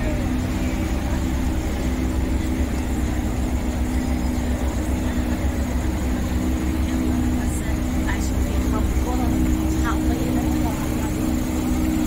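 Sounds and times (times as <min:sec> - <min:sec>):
car engine running at low revs: 0:00.0 - 0:12.0.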